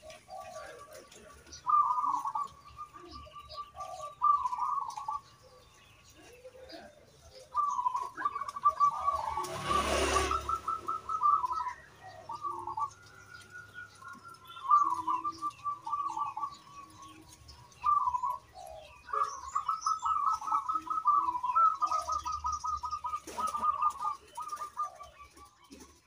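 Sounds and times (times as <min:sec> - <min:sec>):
dove cooing: 0:00.0 - 0:26.0
small birds chirping: 0:00.0 - 0:26.0.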